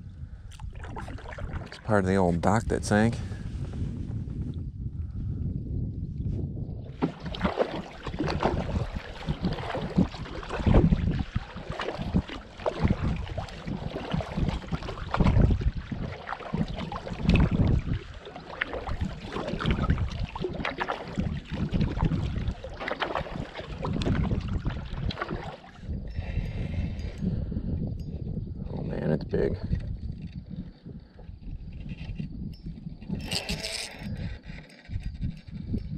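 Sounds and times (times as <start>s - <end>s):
wind buffeting microphone: 0.0s - 35.9s
water splashing around kayak: 0.4s - 3.8s, 6.8s - 32.2s.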